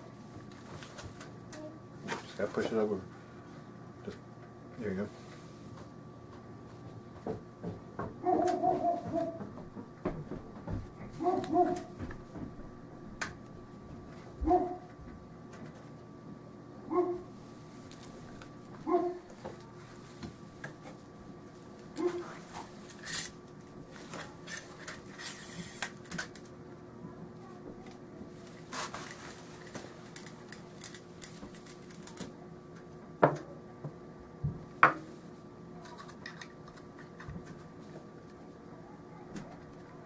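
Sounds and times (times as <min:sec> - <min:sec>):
steel rifle parts clicking: 0:29.1 - 0:32.2.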